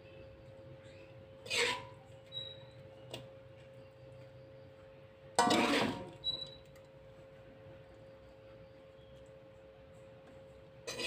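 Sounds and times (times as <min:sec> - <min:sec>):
spatula scraping metal wok: 0:01.4 - 0:02.1, 0:05.4 - 0:06.2.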